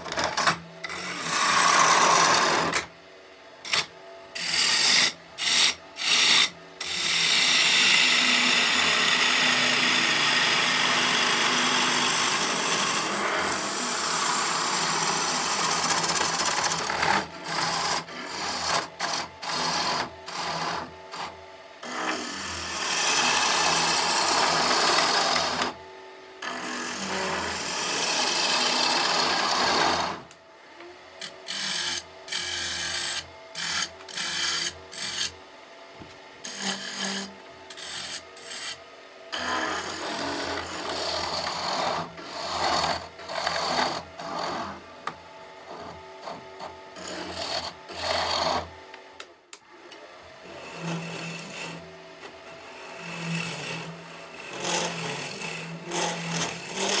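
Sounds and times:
gouge cutting wood on lathe: 0.0s - 2.9s, 3.7s - 25.8s, 26.4s - 30.3s, 31.2s - 35.4s, 36.4s - 44.8s, 45.7s - 48.7s, 50.4s - 51.8s, 52.6s - 57.0s
lathe motor hum: 4.4s - 49.2s, 49.9s - 57.0s.

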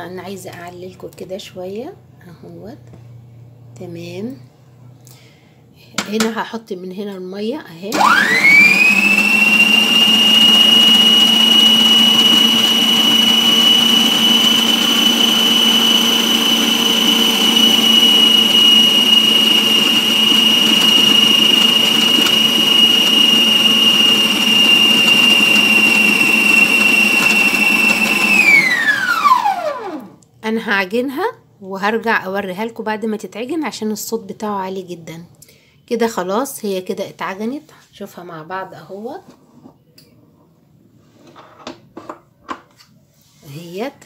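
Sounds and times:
stand mixer motor whining: 8.0s - 30.2s.

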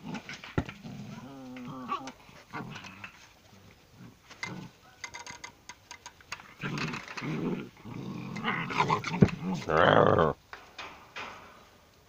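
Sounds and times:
dog growling: 0.0s - 3.2s, 6.6s - 10.4s.

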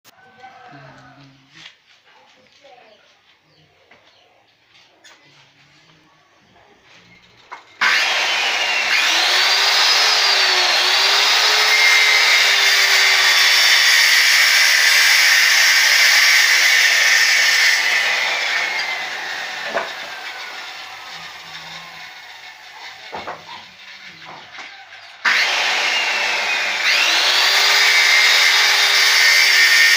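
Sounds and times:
saw blade winding down: 7.6s - 29.9s
circular saw cutting log: 7.8s - 29.9s
knock: 23.1s - 23.5s.

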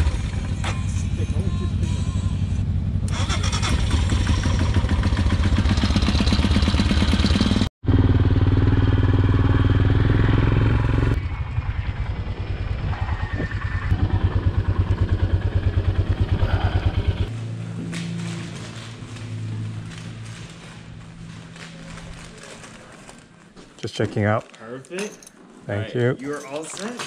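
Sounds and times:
motorcycle engine running: 0.0s - 21.4s.

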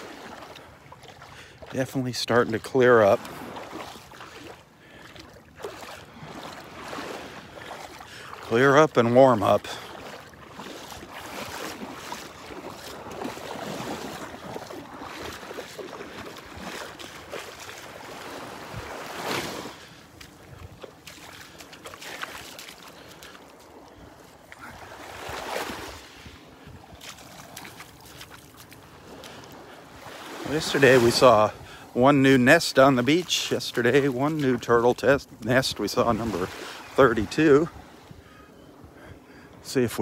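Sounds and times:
small waves washing onto sand: 0.0s - 40.0s
wind on microphone: 24.6s - 27.7s.

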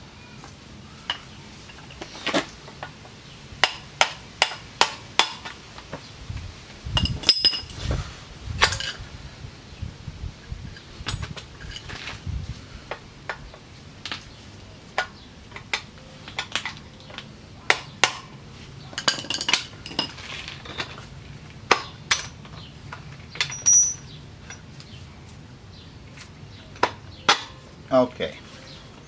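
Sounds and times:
hand tools clinking on metal: 7.0s - 7.8s, 18.9s - 21.1s, 21.7s - 24.8s.

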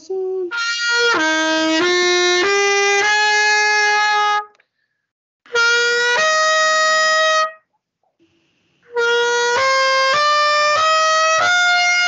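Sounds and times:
trumpet playing scale: 0.5s - 4.6s, 5.5s - 7.7s, 8.8s - 12.0s.

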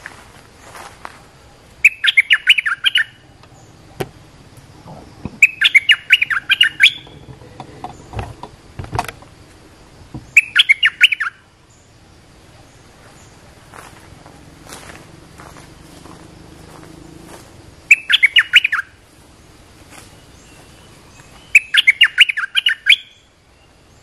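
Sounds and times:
bird bubbling calls: 4.8s - 8.0s.

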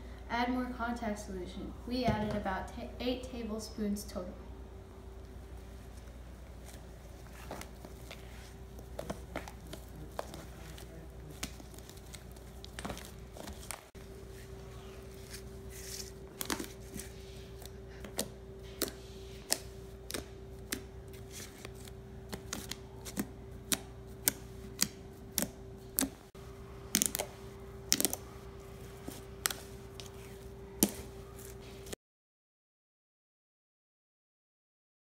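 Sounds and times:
faint steady hum: 0.0s - 32.0s
slime popping and clicking: 26.9s - 27.3s.

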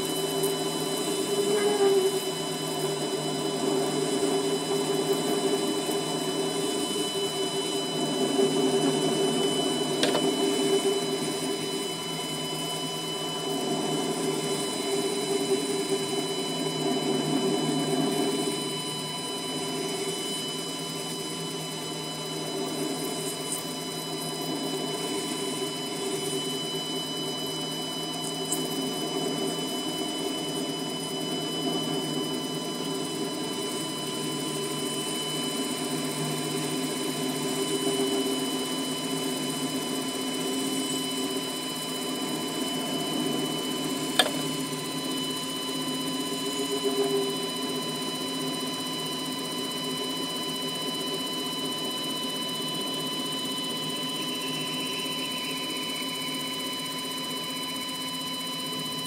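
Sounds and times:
lathe motor whining: 0.0s - 57.0s
sharp click: 44.2s - 44.4s.

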